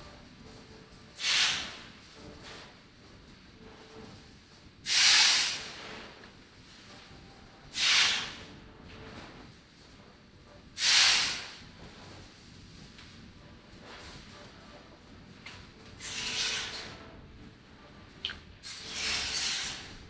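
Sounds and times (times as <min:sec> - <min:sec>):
sharp hissing bursts: 0:01.2 - 0:01.9, 0:04.8 - 0:05.8, 0:07.7 - 0:08.4, 0:10.8 - 0:11.6.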